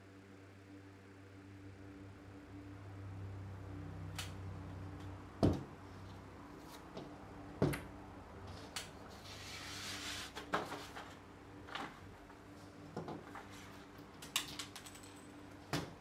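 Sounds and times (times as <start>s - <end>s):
low steady hum: 0.0s - 16.0s
paper rustling: 9.1s - 12.0s.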